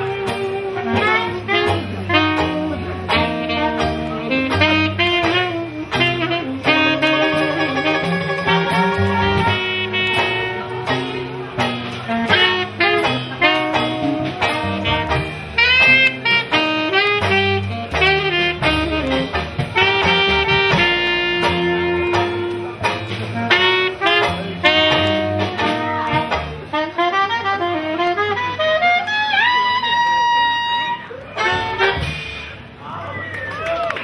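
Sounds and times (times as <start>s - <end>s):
drums with cymbals: 0.0s - 26.9s, 31.4s - 32.8s
bass notes: 0.0s - 32.8s
horn melody: 0.0s - 32.8s.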